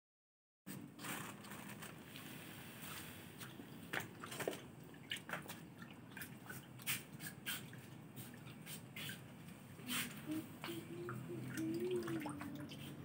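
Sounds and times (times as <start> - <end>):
fish splashing at water surface: 1.0 - 9.3.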